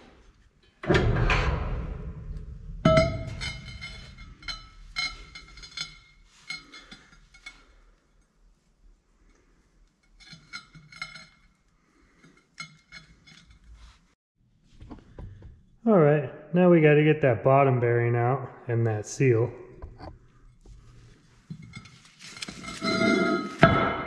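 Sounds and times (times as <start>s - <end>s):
metallic clinks and knocks: 2.8s - 7.9s.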